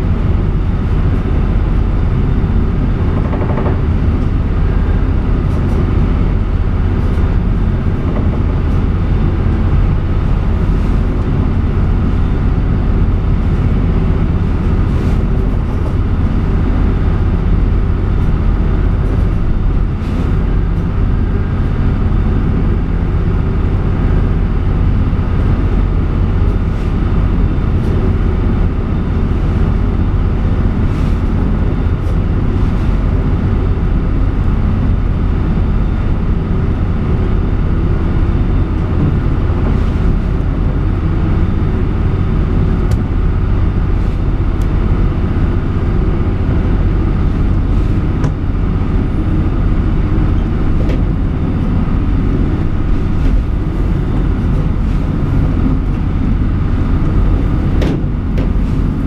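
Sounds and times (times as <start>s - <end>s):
boat engine droning: 0.0s - 59.0s
waves knocking on hull: 2.4s - 12.6s.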